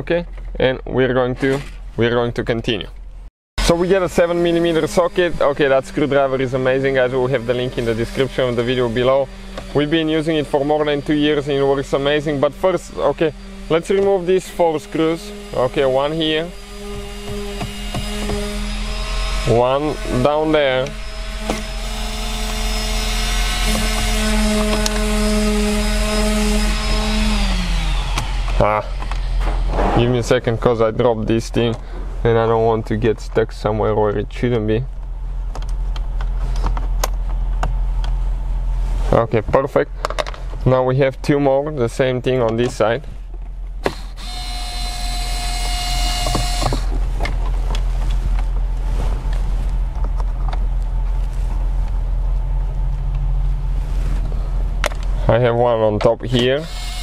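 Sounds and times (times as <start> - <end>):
steady low hum: 0.0 - 57.0
electric screwdriver whining: 3.6 - 29.8, 43.8 - 47.0, 56.6 - 57.0.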